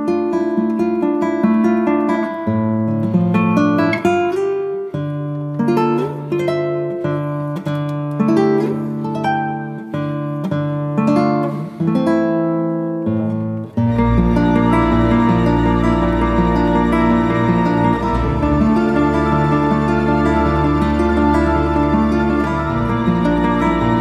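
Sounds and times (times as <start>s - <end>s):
plucked acoustic guitar: 0.0s - 24.0s.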